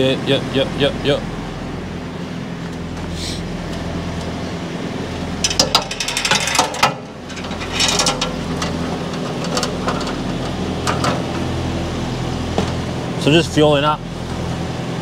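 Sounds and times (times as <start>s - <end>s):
low droning hum: 0.0s - 15.0s
metallic clanking and ratcheting: 5.4s - 11.5s.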